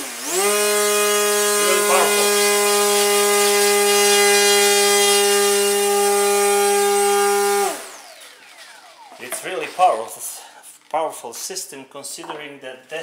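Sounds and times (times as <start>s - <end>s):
electric motor and propeller whine: 0.0s - 9.7s.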